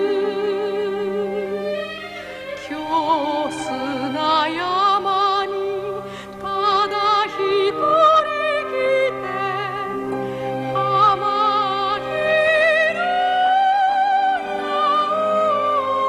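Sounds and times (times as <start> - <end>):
sustained instrumental accompaniment: 0.0 - 16.0
woman singing with vibrato: 0.0 - 16.0.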